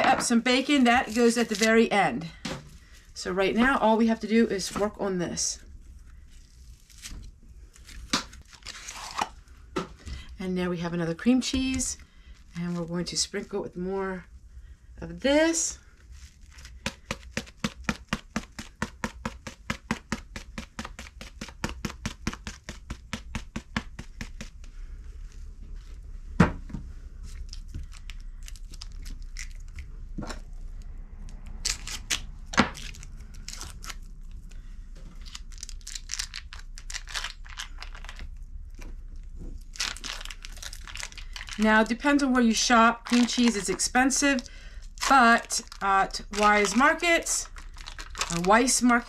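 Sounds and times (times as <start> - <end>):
foil wrapper crinkling: 0.9 - 1.9, 6.1 - 9.4, 15.8 - 23.2, 27.3 - 29.9, 31.6 - 38.4, 39.2 - 49.0.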